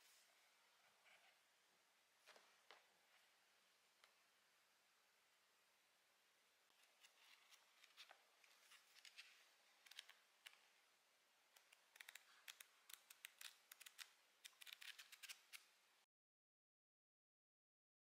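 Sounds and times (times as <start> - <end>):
paper pages flipping: 6.7 - 10.6, 11.6 - 15.6.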